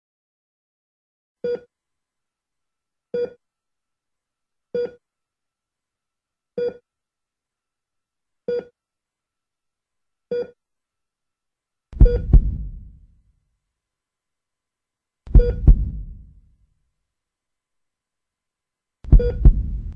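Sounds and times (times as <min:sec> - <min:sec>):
short electronic beeps: 0:12.0 - 0:12.3, 0:15.4 - 0:15.7, 0:19.2 - 0:19.4
deep double thud: 0:12.0 - 0:13.0, 0:15.3 - 0:16.4, 0:19.1 - 0:19.9.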